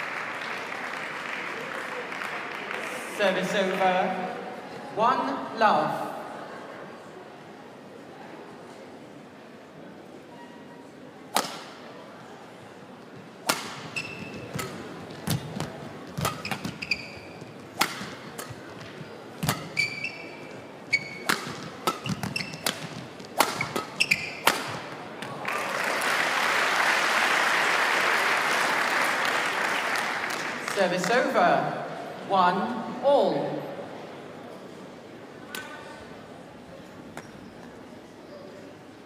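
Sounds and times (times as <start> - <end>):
crowd applauding: 0.0 - 3.1, 25.3 - 30.8
badminton racket hitting shuttlecock: 11.3 - 11.8, 13.4 - 20.2, 20.9 - 24.9
shoes squeaking on court: 13.1 - 25.0.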